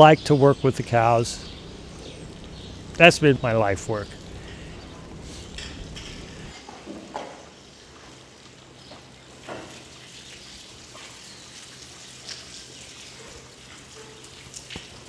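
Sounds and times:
low hum: 0.0 - 6.5.

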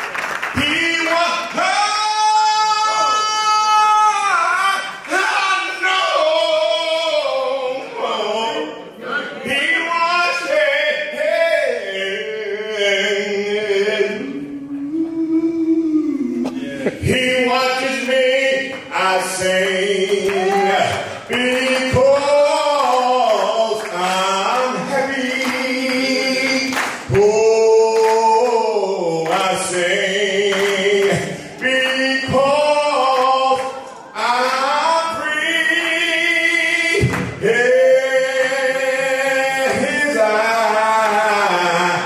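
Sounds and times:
person singing with held gliding notes: 12.0 - 20.5.

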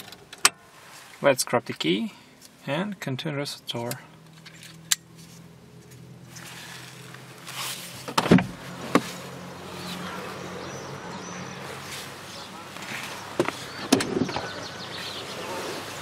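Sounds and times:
car door latch clunk: 8.1 - 9.0.

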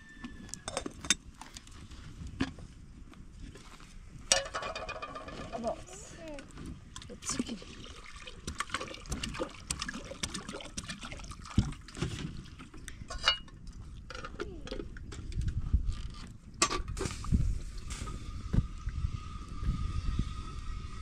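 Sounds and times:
kettle and jug clinks: 4.3 - 5.7, 13.1 - 14.3.

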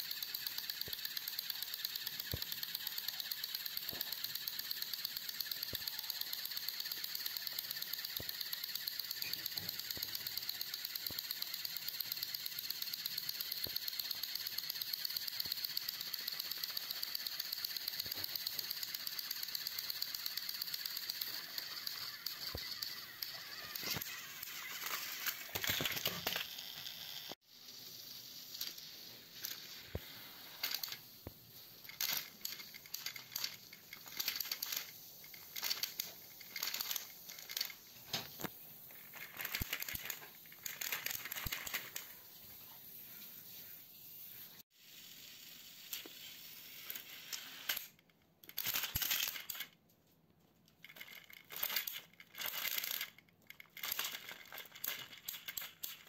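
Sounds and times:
toy trains clattering on track: 0.0 - 42.8, 45.0 - 49.8, 50.7 - 56.0.

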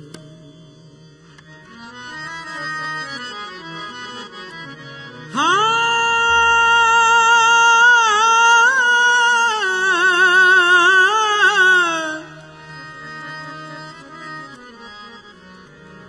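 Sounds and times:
harmonium: 0.0 - 16.0
man singing: 5.3 - 12.8.

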